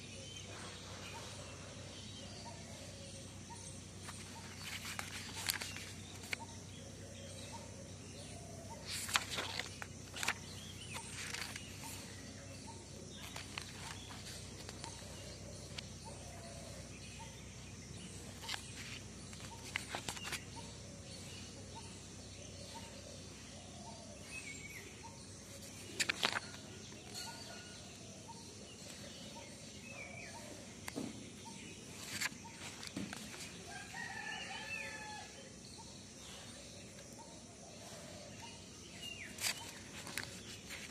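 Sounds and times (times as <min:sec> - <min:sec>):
faint bird calls: 0:00.0 - 0:40.9
steady background hum: 0:00.0 - 0:40.9
notebook pages rustling: 0:04.0 - 0:06.6, 0:08.8 - 0:16.7, 0:18.1 - 0:20.7, 0:25.4 - 0:27.5, 0:30.4 - 0:34.4, 0:38.9 - 0:40.9.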